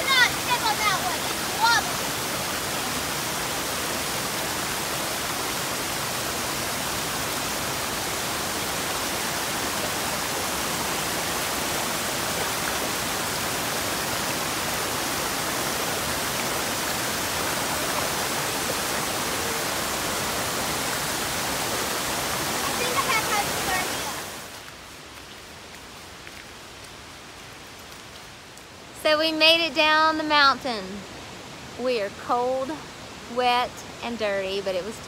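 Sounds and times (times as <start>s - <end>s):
waterfall rushing: 0.0s - 24.7s
water running over boulders: 0.0s - 28.9s.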